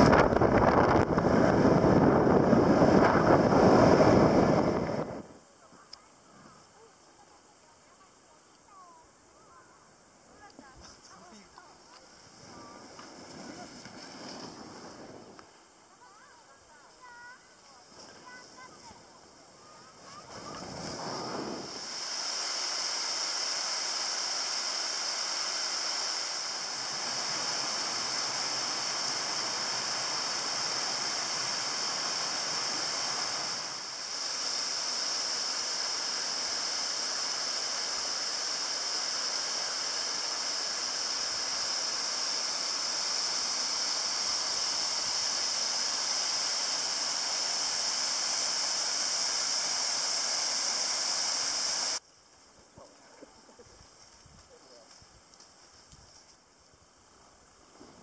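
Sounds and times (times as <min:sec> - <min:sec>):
waterfall rushing: 0:20.4 - 0:52.0.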